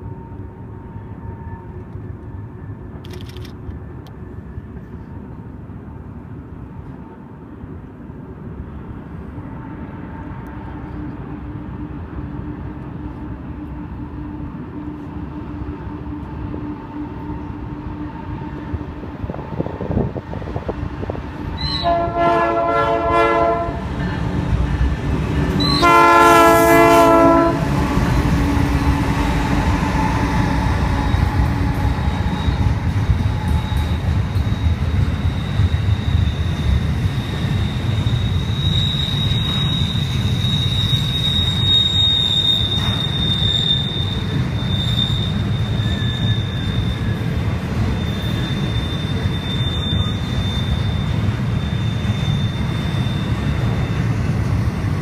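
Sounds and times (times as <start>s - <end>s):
freight train rumbling past: 0.0s - 55.0s
locomotive air horn blasts: 21.6s - 23.9s, 25.6s - 32.8s
high wheel squeal: 25.5s - 26.9s, 28.0s - 54.7s.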